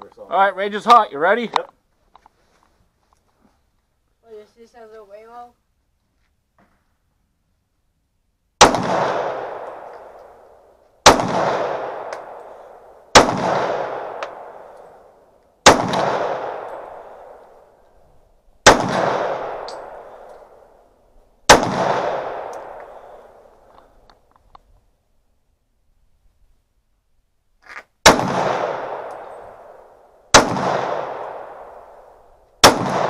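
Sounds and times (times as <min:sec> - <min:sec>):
pistol shots with echo: 0:08.6 - 0:15.0, 0:15.6 - 0:17.4, 0:18.6 - 0:20.6, 0:21.5 - 0:23.5, 0:28.0 - 0:33.0.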